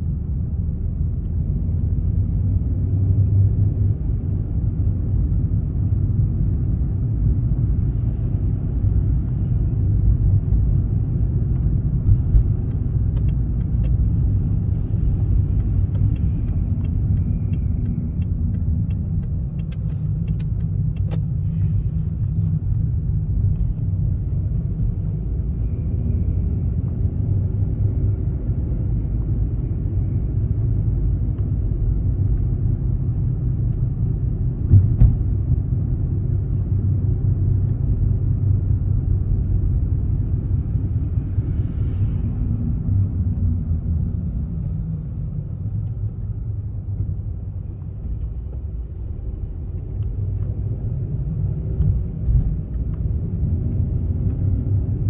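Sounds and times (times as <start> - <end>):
car tyres and engine rumble: 0.0 - 55.0.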